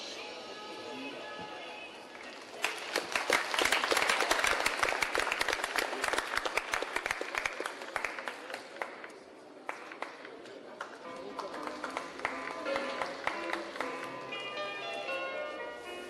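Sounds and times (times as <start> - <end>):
audience applauding: 2.2 - 14.2.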